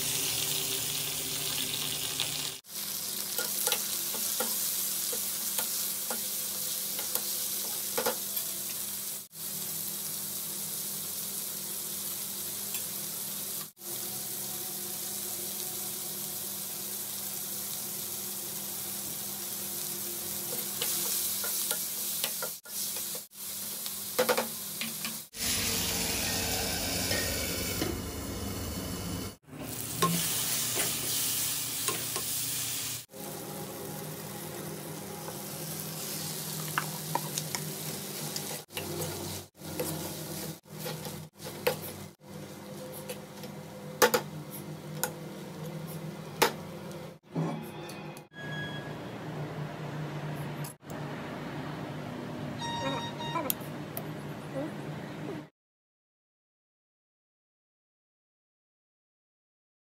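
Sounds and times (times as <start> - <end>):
vegetables sizzling in oil: 0.0 - 27.7, 29.4 - 43.5.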